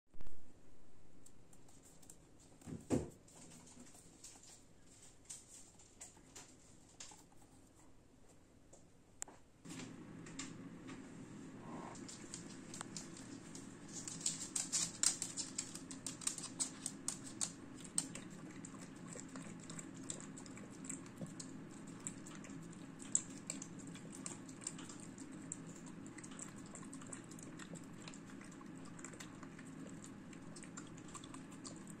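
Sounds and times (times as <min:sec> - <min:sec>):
dog chewing and lapping: 0:11.8 - 0:32.0.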